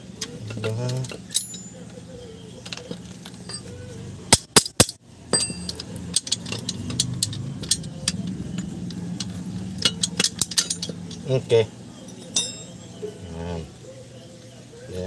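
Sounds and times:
steady low hum: 0.0 - 15.0
metal brake parts clicking: 0.2 - 2.0, 2.6 - 11.4, 12.0 - 12.8
sharp metal knocks: 4.3 - 11.2, 12.3 - 12.8.

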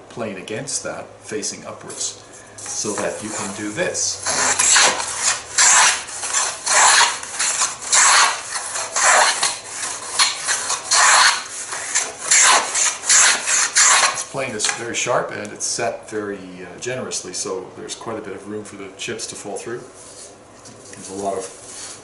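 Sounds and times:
plane cutting strokes on wood: 2.7 - 14.3.

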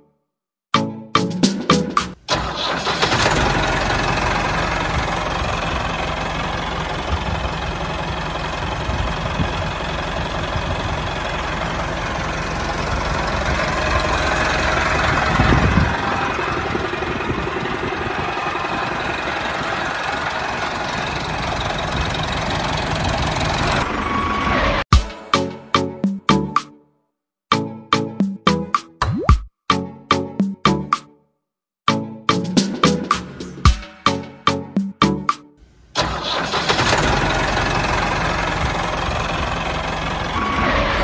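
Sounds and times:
tractor engine running: 1.7 - 24.2, 35.6 - 41.0.

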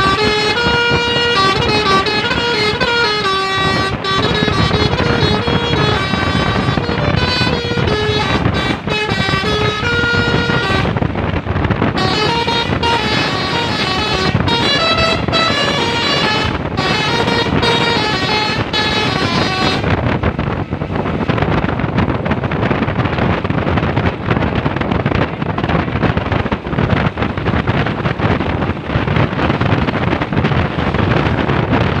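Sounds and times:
multi-tone air horn tune: 0.0 - 11.0, 11.9 - 19.9
bus rumbling by: 0.0 - 32.0.

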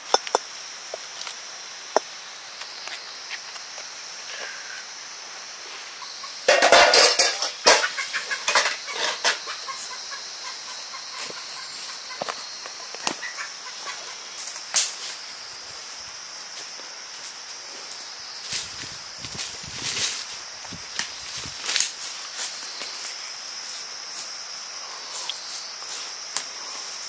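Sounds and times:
chicken clucking: 6.0 - 14.3
chicken squawking: 7.6 - 12.3, 13.2 - 14.2.

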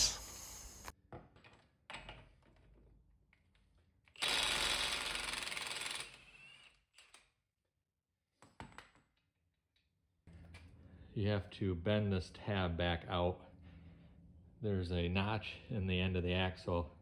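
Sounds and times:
impact wrench running: 4.2 - 6.4.

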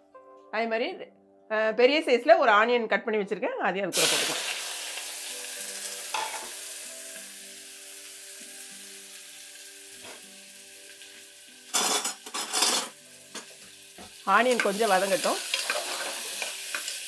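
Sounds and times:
onion and spices sizzling in oil: 3.9 - 17.0
spoon scraping and stirring: 15.6 - 16.5.

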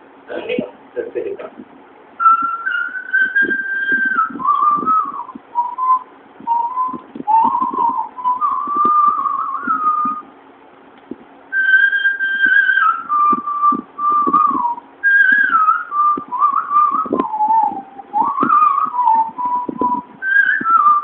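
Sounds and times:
person whistling a melody: 2.2 - 10.3, 11.5 - 21.0.

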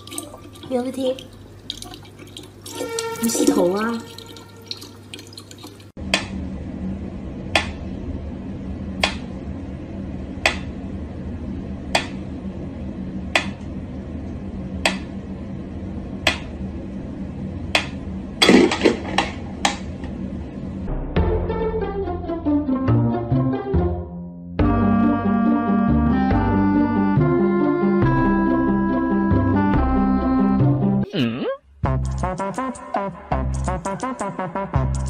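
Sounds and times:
water trickling into plastic bottle: 0.0 - 5.9
low hum: 6.0 - 22.5.

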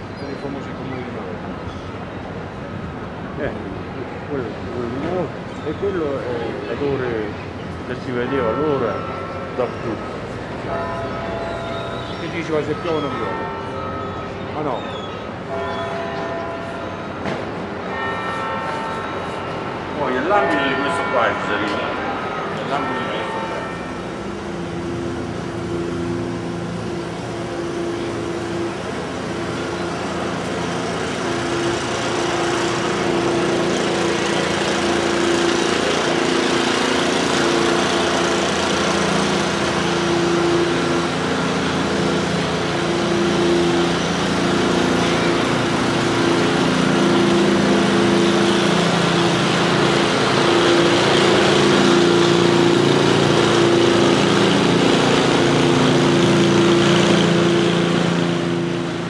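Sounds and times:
engine running steadily: 23.6 - 59.0.

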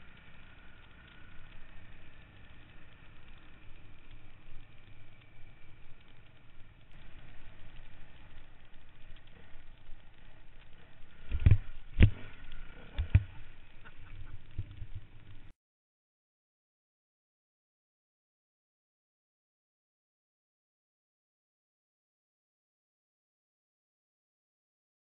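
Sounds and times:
motorcycle engine idling: 0.0 - 15.5.

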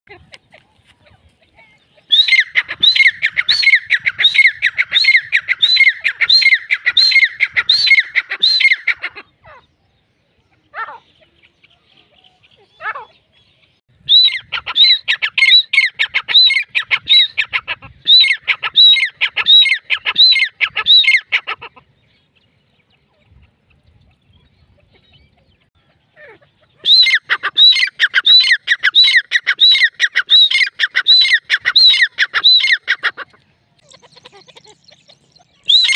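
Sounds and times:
francolin calling: 1.8 - 9.9, 23.8 - 35.9.

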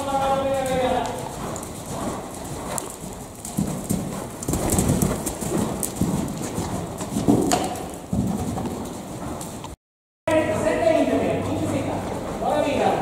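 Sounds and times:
hoofbeats on sand: 0.0 - 9.8.

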